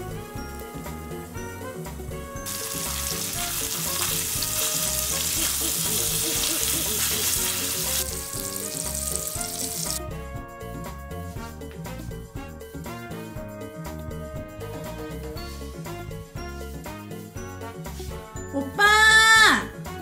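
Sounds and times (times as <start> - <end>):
background music: 0.0 - 20.0
steaks sizzling in a pan: 2.4 - 10.0.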